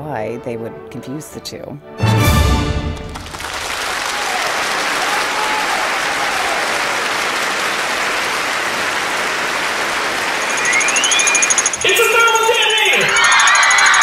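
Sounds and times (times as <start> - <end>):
audience applause: 2.9 - 14.0.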